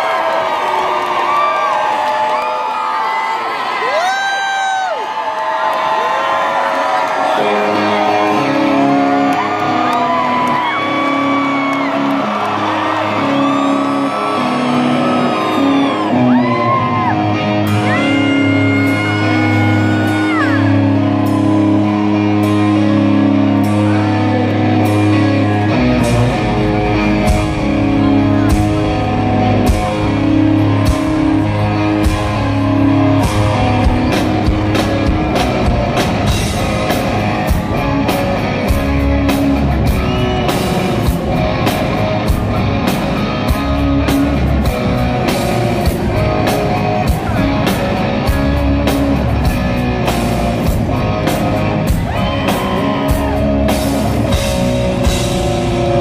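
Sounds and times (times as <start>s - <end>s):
crowd whooping: 0.0s - 56.0s
electric guitar chords: 7.1s - 56.0s
bass and drums beat: 17.5s - 56.0s.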